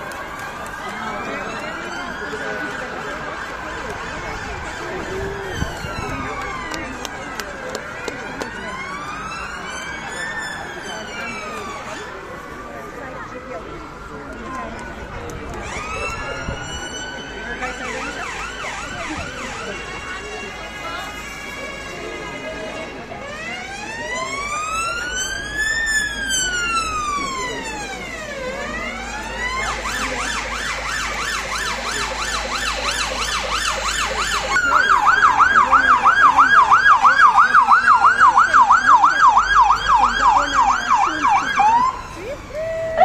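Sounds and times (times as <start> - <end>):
emergency siren wailing and yelping: 0.0 - 19.9, 23.1 - 43.0.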